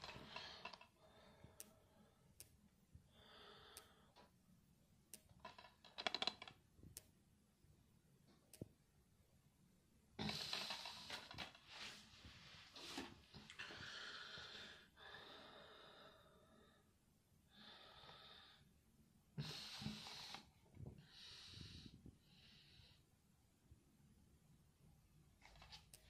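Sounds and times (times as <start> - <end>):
faint breathing: 3.1 - 4.3, 12.7 - 18.8, 19.4 - 23.1.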